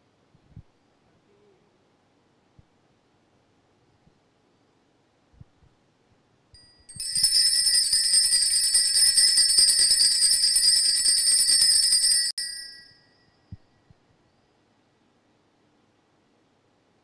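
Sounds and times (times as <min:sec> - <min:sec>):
bells jingling: 0:06.6 - 0:13.3.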